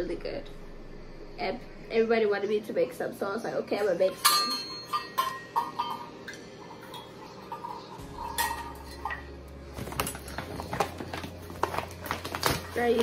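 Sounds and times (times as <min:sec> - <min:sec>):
low steady hum: 0:00.0 - 0:13.0
metal measuring cups clinking: 0:04.2 - 0:09.3.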